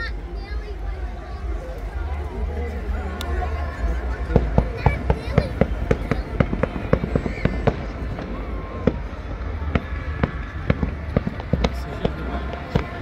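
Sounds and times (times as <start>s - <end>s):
low rumble: 0.0s - 13.0s
fireworks bangs and cracks: 4.3s - 13.0s.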